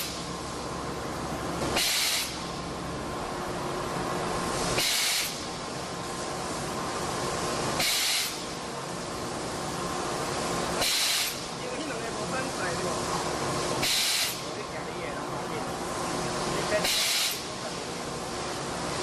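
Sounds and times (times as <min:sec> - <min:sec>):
compressed air hissing: 0:00.0 - 0:00.7, 0:01.6 - 0:02.7, 0:04.2 - 0:14.6, 0:15.7 - 0:19.0
forging machine humming: 0:00.0 - 0:19.0.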